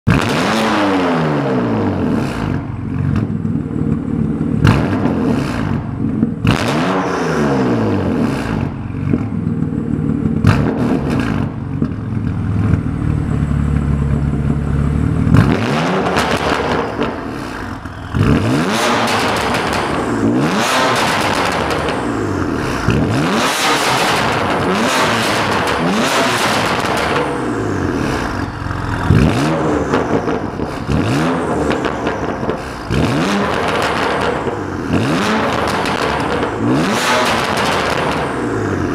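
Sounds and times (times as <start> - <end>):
car engine revving: 0.1 - 38.9
exhaust cracks: 0.1 - 38.9.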